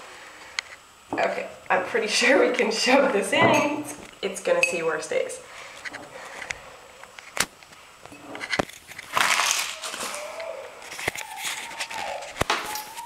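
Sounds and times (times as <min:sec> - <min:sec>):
paper wrapper crinkling: 0:08.4 - 0:13.0.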